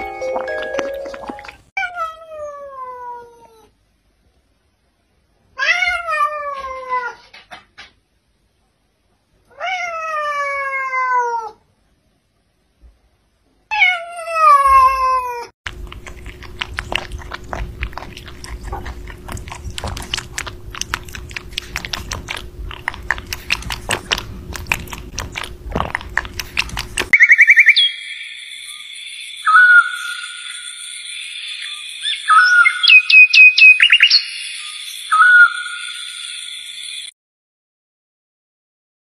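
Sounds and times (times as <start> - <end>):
faint steady hum: 15.7 - 27.2
rabbit chewing: 15.7 - 27.2.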